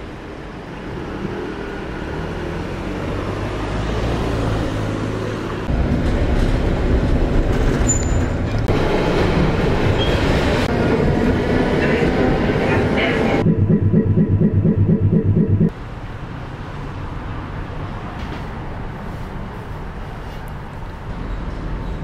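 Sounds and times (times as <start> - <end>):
train rumbling: 5.6 - 15.7.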